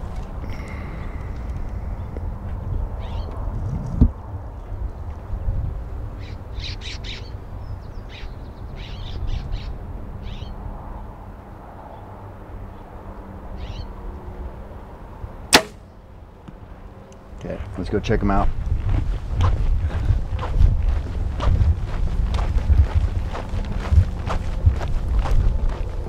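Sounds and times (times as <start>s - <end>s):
wind rumble on microphone: 0.0s - 13.0s, 17.4s - 26.0s
small birds chirping: 3.0s - 3.4s, 6.2s - 10.6s, 13.6s - 13.9s
bow shot snap: 15.5s - 15.8s.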